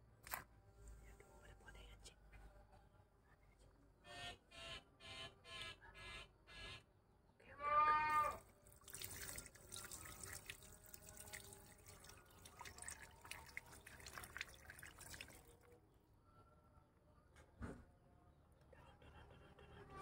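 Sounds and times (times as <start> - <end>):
water pouring onto plastic sheet: 8.4 - 15.7.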